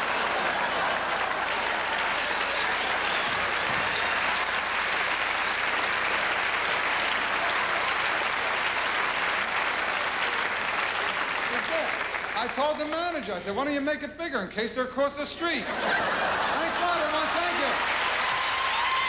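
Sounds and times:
audience laughing: 0.0s - 3.6s, 15.6s - 18.1s
audience applauding: 0.0s - 13.2s, 15.9s - 19.0s.

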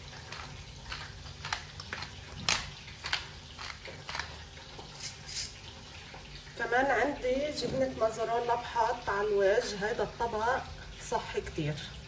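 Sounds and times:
pepper mill grinding: 0.0s - 5.6s.

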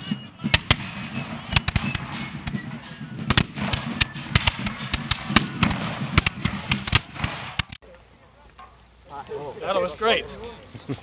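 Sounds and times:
muskets firing: 0.0s - 7.8s.

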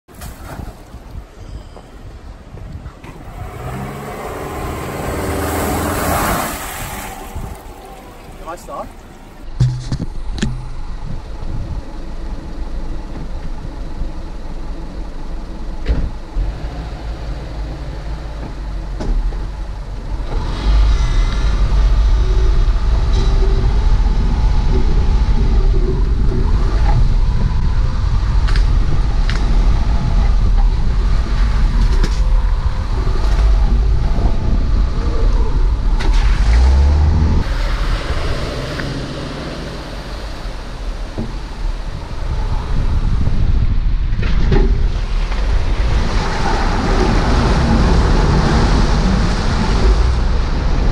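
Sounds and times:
engine and tyre rumble: 0.0s - 50.9s
knocks and rattles over bumps: 7.6s - 11.8s, 44.0s - 48.8s.

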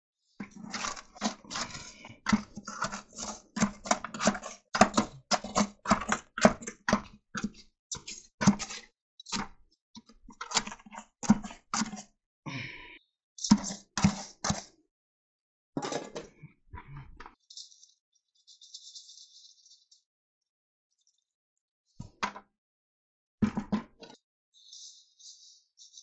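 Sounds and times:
trowel scraping wet concrete: 0.4s - 9.5s, 13.5s - 14.7s.

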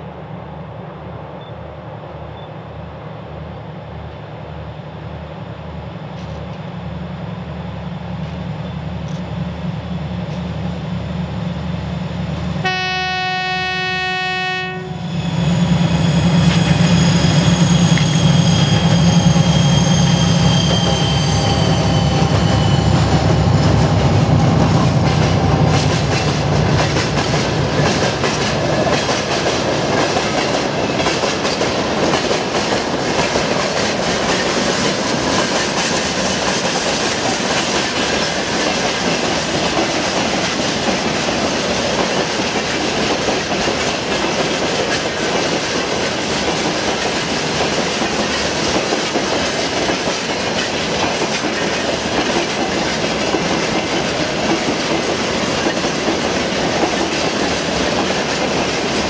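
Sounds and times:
diesel locomotive engines droning: 0.0s - 59.0s
train passing with rush and whine: 0.0s - 59.0s
train horn blast: 12.6s - 15.2s
wheels clacking over rail joints: 21.9s - 59.0s.

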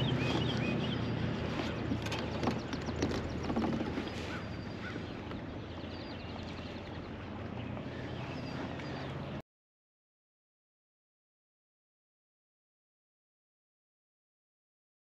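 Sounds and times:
low hum of wind and water: 0.0s - 9.4s
small birds chirping: 0.0s - 9.4s.

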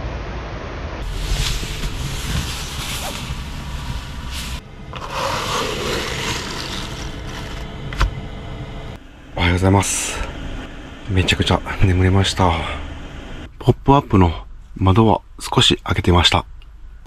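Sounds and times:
outdoor air noise: 0.0s - 17.0s
window blind sliding open: 1.0s - 7.6s.

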